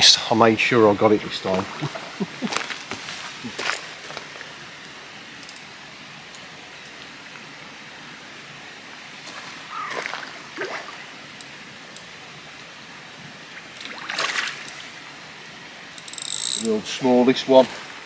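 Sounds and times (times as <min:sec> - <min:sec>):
fish splashing at water surface: 0:09.3 - 0:11.1, 0:13.8 - 0:14.9.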